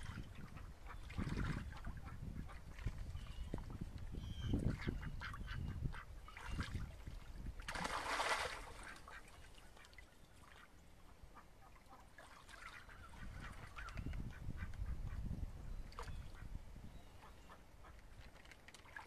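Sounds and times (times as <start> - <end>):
water dribbling: 6.4 - 10.6
loud water splash: 7.7 - 8.9.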